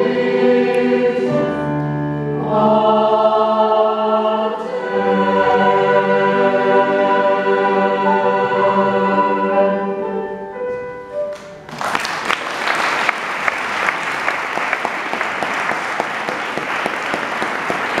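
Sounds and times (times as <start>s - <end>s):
mixed choir singing: 0.0s - 10.4s
audience applauding: 11.3s - 18.0s.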